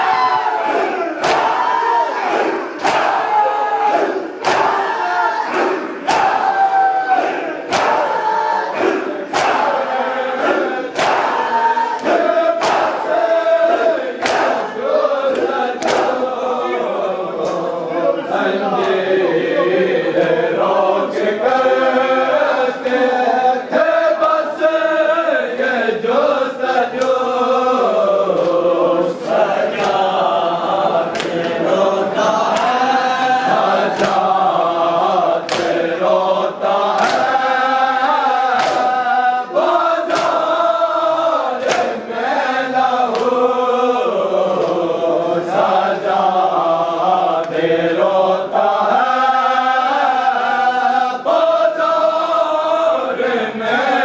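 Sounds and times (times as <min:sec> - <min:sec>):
people chanting in unison: 0:00.0 - 0:54.0
hands slapping chests: 0:00.7 - 0:03.4, 0:04.4 - 0:06.6, 0:07.6 - 0:08.2, 0:08.8 - 0:09.8, 0:10.9 - 0:14.7, 0:15.3 - 0:16.2, 0:27.0 - 0:27.2, 0:28.3 - 0:28.6, 0:29.2 - 0:30.2, 0:31.1 - 0:31.7, 0:32.4 - 0:32.8, 0:33.8 - 0:34.4, 0:35.4 - 0:35.9, 0:36.8 - 0:37.4, 0:38.4 - 0:39.0, 0:40.0 - 0:40.6, 0:41.6 - 0:42.0, 0:43.1 - 0:43.5, 0:44.4 - 0:44.9.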